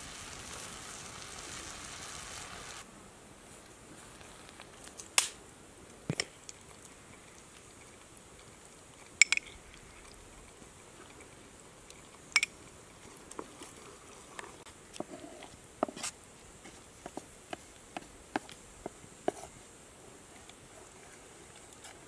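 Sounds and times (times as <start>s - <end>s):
spatula stirring thick sauce: 14.4s - 19.6s.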